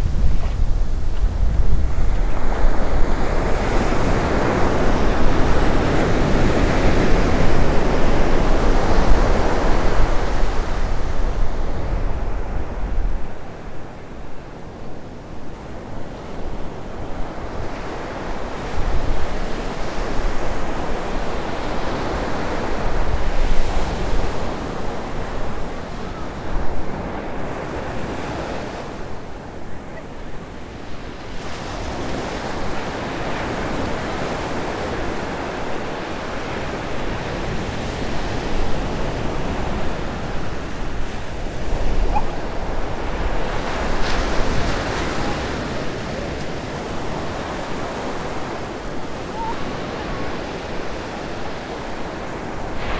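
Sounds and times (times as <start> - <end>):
wind rumbling on microphone: 0.0 - 52.9
waves breaking on sand: 17.2 - 52.9.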